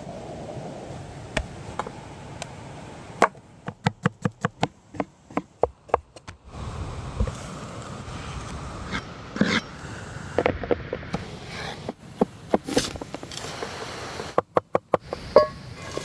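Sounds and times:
knife chopping onion on wood: 3.7s - 6.1s.

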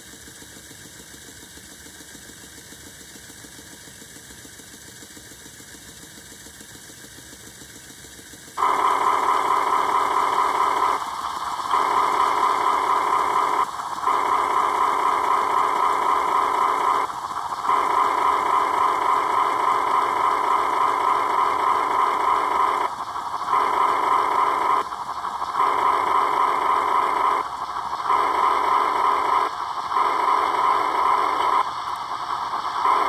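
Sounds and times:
model steam locomotive hissing: 0.0s - 33.0s.

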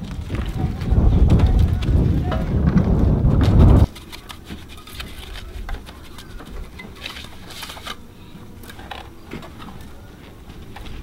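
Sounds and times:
scratchy rustle: 0.1s - 8.1s
gloved hands clicking and scraping: 3.4s - 8.0s.

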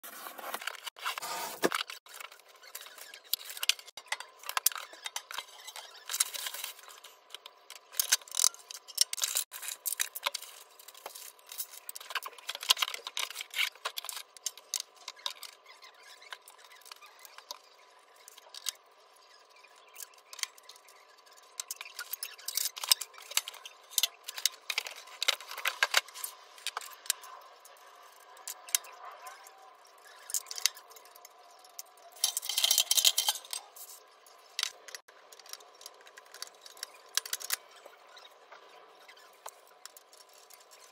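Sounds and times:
steel frame pieces clattering: 32.1s - 34.0s.

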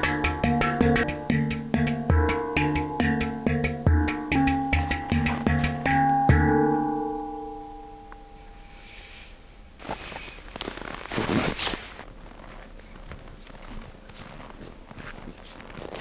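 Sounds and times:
handpan notes ringing: 0.0s - 8.9s
soft rustling and scraping: 8.6s - 16.0s.

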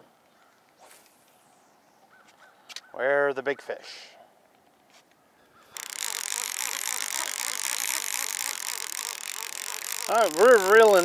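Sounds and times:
fishing reel whirring: 5.7s - 11.0s.

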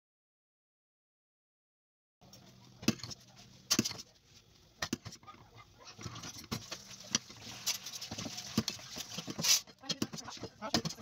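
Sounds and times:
metal ladle scraping a pot: 4.9s - 11.0s.

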